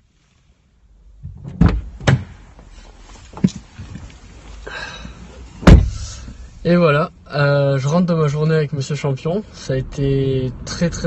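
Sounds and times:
knocks inside car cabin: 1.2s - 2.4s, 5.7s - 6.0s.

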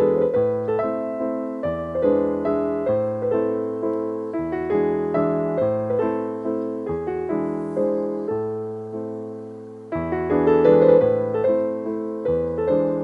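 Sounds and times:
calm piano music: 0.0s - 13.0s.

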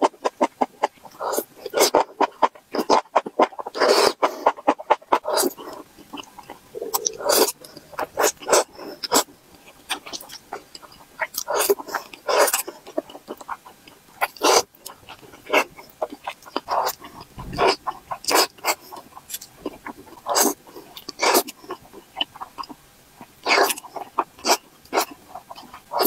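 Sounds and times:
wet chewing and smacking: 0.0s - 26.0s
slurping noodles: 2.7s - 9.3s, 14.2s - 21.8s.

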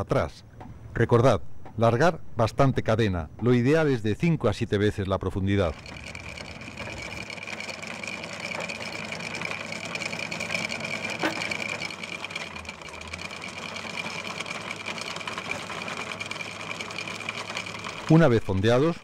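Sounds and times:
anchor windlass whining: 5.2s - 19.0s.

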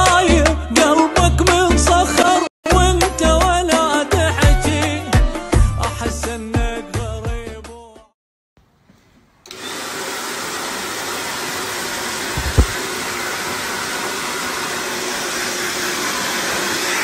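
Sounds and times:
loud air blowing rush: 12.3s - 12.9s
brief low thump: 12.4s - 12.8s.

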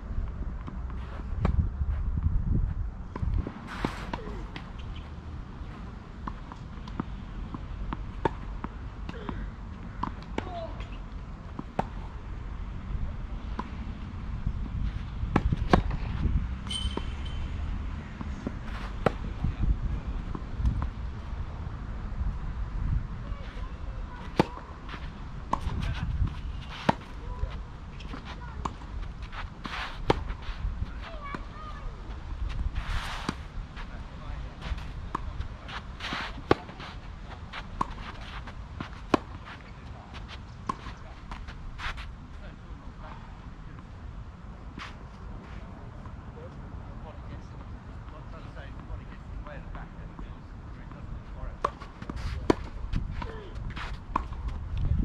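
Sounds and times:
racket hitting tennis ball: 15.3s - 19.4s, 23.2s - 31.8s, 34.6s - 42.0s, 51.6s - 54.6s
tennis ball bouncing: 15.3s - 19.4s, 23.3s - 31.8s, 34.7s - 41.6s, 51.6s - 54.6s
shoe scuffs on clay: 23.3s - 31.4s, 32.5s - 33.9s, 34.5s - 42.1s, 51.6s - 54.6s
tennis ball hit by racket: 23.5s - 31.6s, 34.6s - 37.0s.

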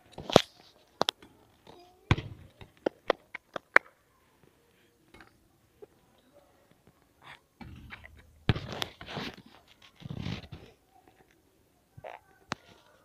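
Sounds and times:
basketball hitting hoop: 2.1s - 2.5s, 7.6s - 8.8s
basketball bouncing on asphalt: 2.1s - 2.8s.

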